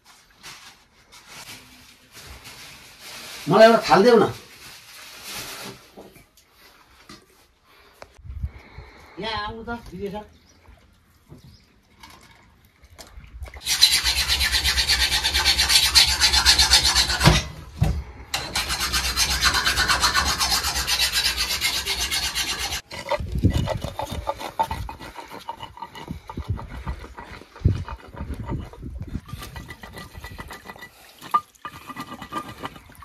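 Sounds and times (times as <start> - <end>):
rhythmic rasping scrape: 13.6 - 17.5, 18.3 - 33.0
scattered knocks and handling: 22.9 - 33.0.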